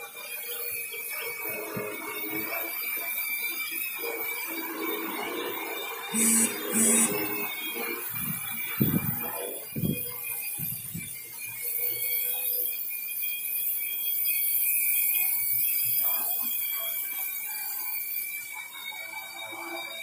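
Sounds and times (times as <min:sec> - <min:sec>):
drone propellers whining: 0:06.1 - 0:07.3.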